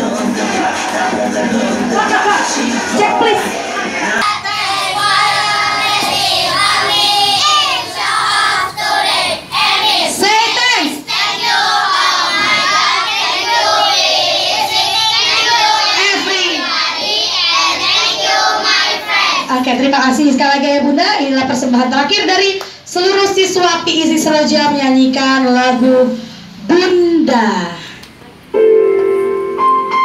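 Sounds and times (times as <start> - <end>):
children singing in chorus: 4.2 - 10.2, 11.0 - 19.5.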